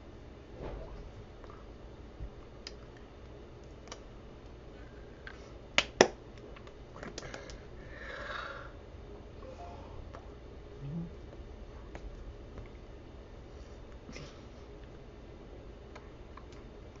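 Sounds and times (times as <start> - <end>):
sharp hand slaps: 5.8 - 6.2.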